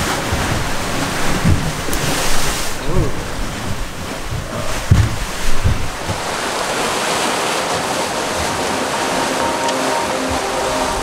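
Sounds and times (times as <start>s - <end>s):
sea waves rushing and breaking: 0.0s - 11.0s
wind buffeting microphone: 0.0s - 11.0s.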